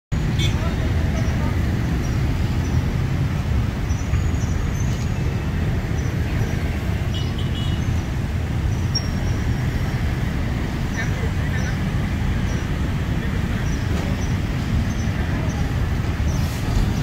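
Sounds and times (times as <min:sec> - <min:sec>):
heavy vehicle engines rumbling: 0:00.1 - 0:17.0
road traffic: 0:00.1 - 0:17.0.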